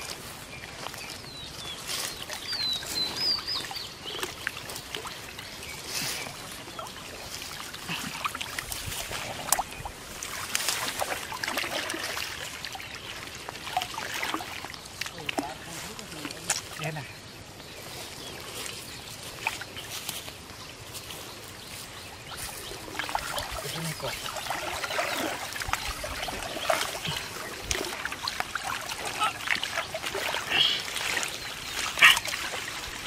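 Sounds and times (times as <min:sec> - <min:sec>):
water sloshing and splashing: 0:00.0 - 0:17.0, 0:17.8 - 0:33.0
bird chirping: 0:00.6 - 0:07.0
water dripping: 0:06.4 - 0:17.0, 0:22.3 - 0:33.0.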